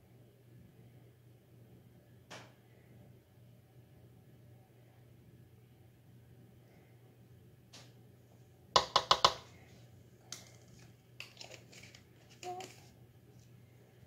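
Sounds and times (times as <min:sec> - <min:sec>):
measuring spoon tapping: 0:08.8 - 0:09.4.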